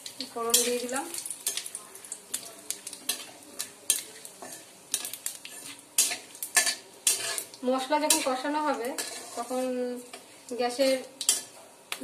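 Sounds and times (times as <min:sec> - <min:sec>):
oil sizzling lightly: 0:00.0 - 0:12.0
metal spatula scraping and knocking pan: 0:03.1 - 0:10.2.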